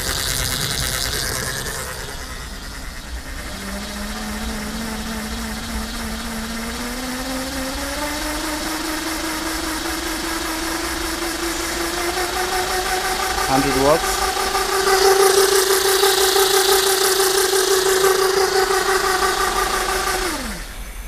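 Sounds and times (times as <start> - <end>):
electric motor whine: 0.0 - 21.0.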